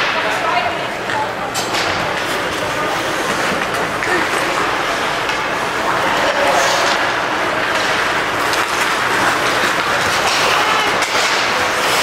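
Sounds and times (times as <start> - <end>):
crowd noise: 0.0 - 12.0
ice hockey play on ice: 0.0 - 12.0.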